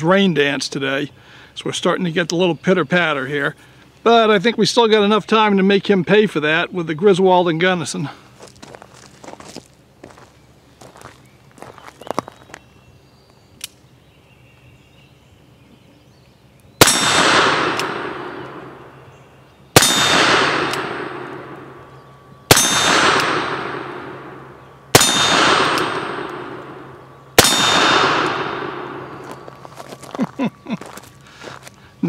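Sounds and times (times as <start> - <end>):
revolver shots with echo: 16.8 - 19.0, 19.8 - 21.8, 22.5 - 29.4.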